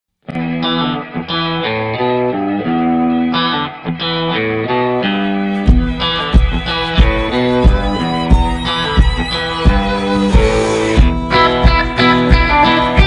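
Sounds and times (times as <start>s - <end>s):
guitar melody with effects: 0.2s - 13.0s
heavy low beat: 5.5s - 13.0s.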